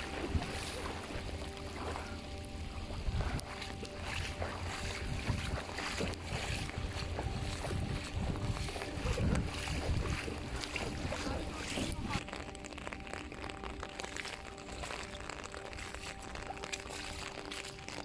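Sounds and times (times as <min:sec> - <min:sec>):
wind buffeting microphone: 0:00.0 - 0:12.2
water sloshing and splashing: 0:00.0 - 0:18.0.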